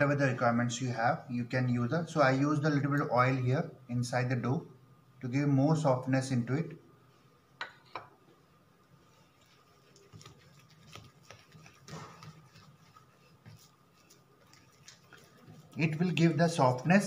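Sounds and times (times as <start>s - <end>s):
hands kneading dough: 8.8s - 17.0s.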